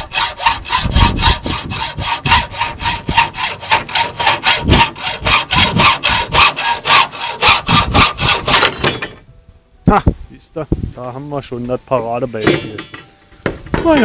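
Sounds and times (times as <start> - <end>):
hacksaw cutting metal pipe: 0.0 - 9.2.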